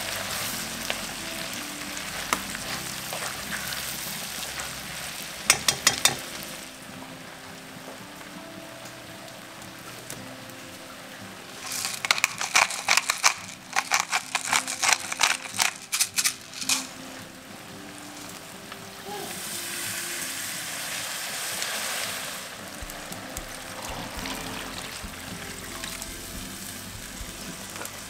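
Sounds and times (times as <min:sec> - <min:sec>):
food sizzling in a pot: 0:00.0 - 0:10.6, 0:11.4 - 0:28.0.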